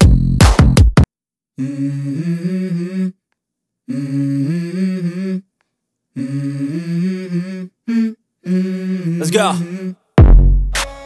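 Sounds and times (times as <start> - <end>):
hummed vocal melody: 1.6 - 3.2, 3.8 - 5.5, 6.1 - 10.1.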